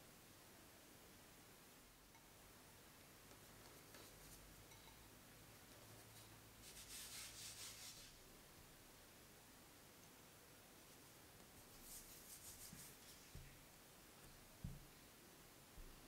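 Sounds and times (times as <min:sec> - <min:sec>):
hand rubbing flour on countertop: 0:05.8 - 0:08.2, 0:11.6 - 0:13.6.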